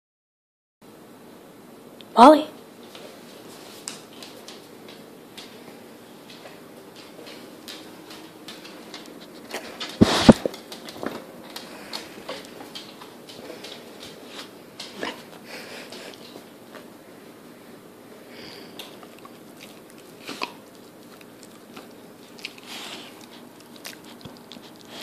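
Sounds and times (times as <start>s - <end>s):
dog ticks and mouth smacks: 18.8s - 25.0s.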